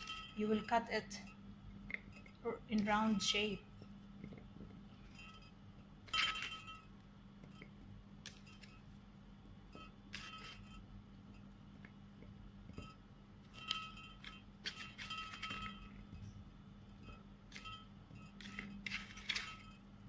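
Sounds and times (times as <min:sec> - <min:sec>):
vegetable slices clinking on glass: 0:17.5 - 0:19.8.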